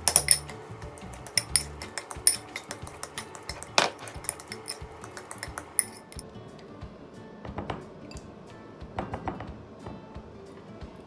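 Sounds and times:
fork clinking and scraping bowl: 0:00.0 - 0:06.2.

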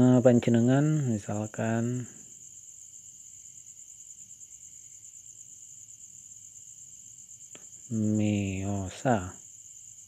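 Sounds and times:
man's voice held on one pitch: 0:00.0 - 0:02.2, 0:07.9 - 0:09.4
high-pitched insect chirring: 0:00.0 - 0:10.0.

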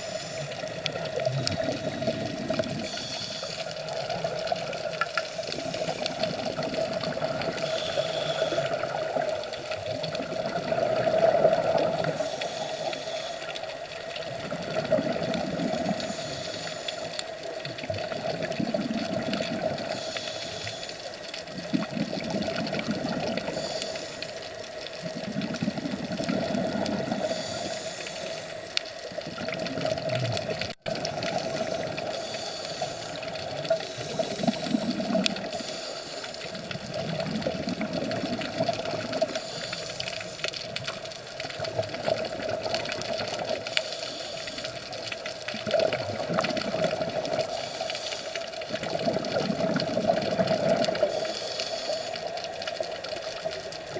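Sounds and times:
scuba regulator breathing bubbles: 0:00.0 - 0:53.9
underwater hum: 0:00.0 - 0:53.9.

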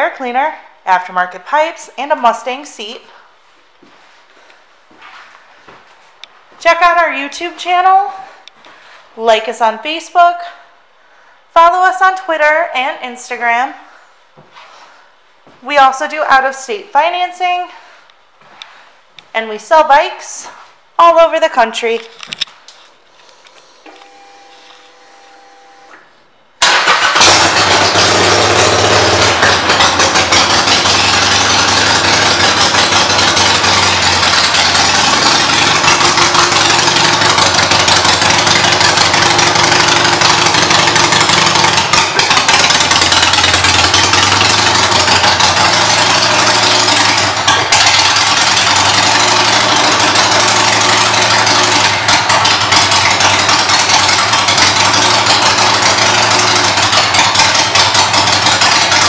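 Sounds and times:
motorcycle engine starting and idling: 0:26.6 - 0:59.0.

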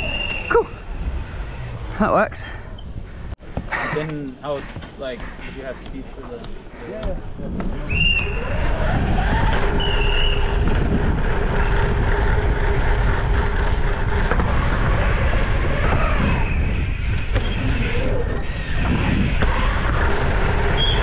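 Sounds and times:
bike tyre noise: 0:00.0 - 0:21.0
wind rush: 0:07.2 - 0:21.0.

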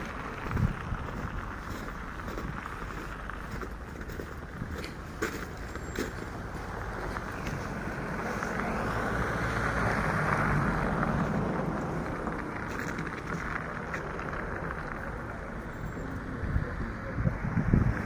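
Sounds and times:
car driving past: 0:05.8 - 0:18.0.

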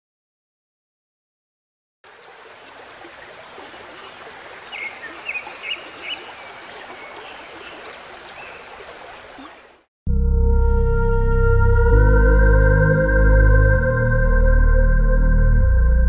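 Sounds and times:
flowing water: 0:02.0 - 0:09.9
slow synthesizer music: 0:10.1 - 0:16.0.

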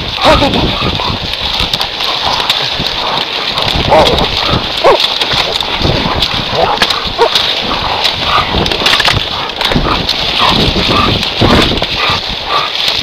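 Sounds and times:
twigs and brush snapping: 0:00.0 - 0:13.0
dogs yelping and snarling: 0:01.9 - 0:12.8.

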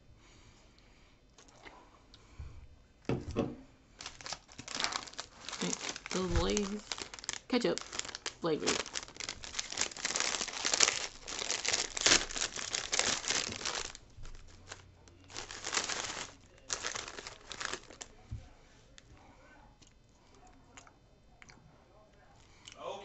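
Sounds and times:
chip crunching: 0:04.0 - 0:18.2
foil chip bag crinkling: 0:04.0 - 0:18.2
hand rustling in bag: 0:04.0 - 0:18.2.

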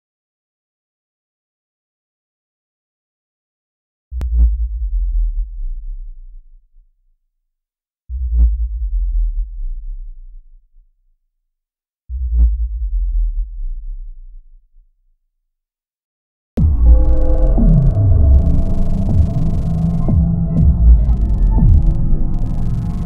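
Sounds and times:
brief higher tone: 0:16.6 - 0:23.0
deep low booms: 0:16.6 - 0:23.0.

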